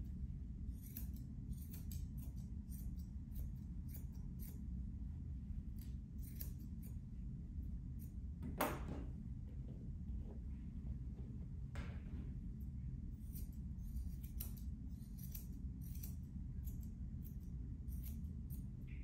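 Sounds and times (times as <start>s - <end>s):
scissors snipping fur: 0.0s - 4.9s, 5.5s - 8.9s, 12.6s - 19.0s.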